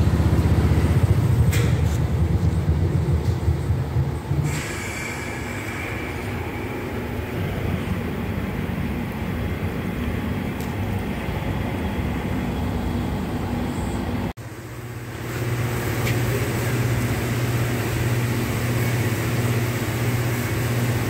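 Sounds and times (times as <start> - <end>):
machinery rumble and hum: 0.0 - 21.0.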